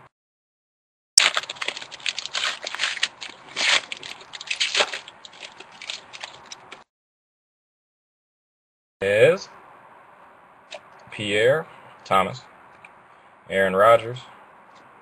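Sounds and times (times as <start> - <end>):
foil wrapper tearing and crinkling: 1.2 - 6.8.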